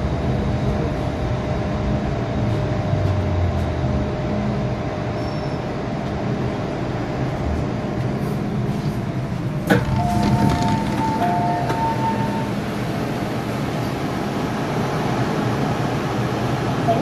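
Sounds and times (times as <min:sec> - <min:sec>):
train rumbling to a stop: 0:00.0 - 0:17.0
two-tone door chime: 0:09.8 - 0:12.6.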